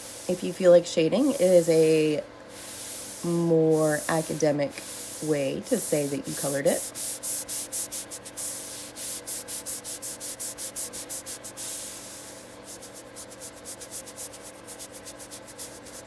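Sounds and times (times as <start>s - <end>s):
stylus scratching on glass screen: 12.7s - 16.0s.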